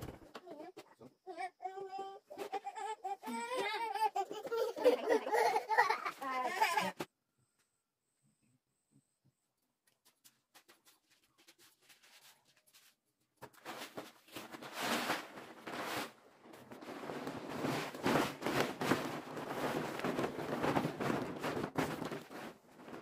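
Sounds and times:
plastic tarpaulins rustling: 11.6 - 23.0.

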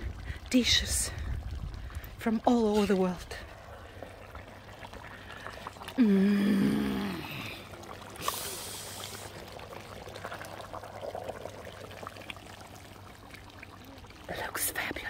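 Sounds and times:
hiss: 8.2 - 9.4.

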